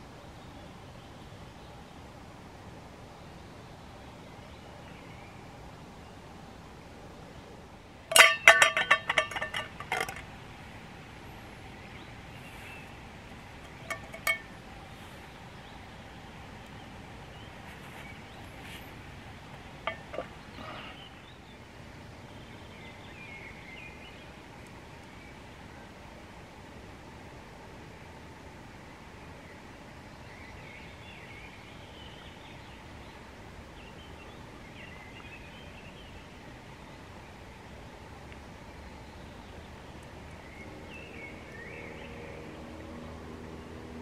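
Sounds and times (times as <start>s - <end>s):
metal cookware clinking: 8.1s - 10.2s, 13.7s - 14.5s, 19.9s - 20.3s.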